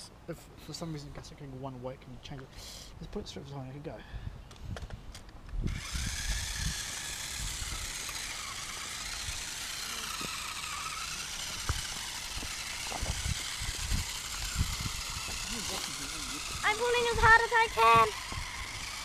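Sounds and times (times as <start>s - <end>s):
toy truck electric motor whining: 5.6s - 19.0s.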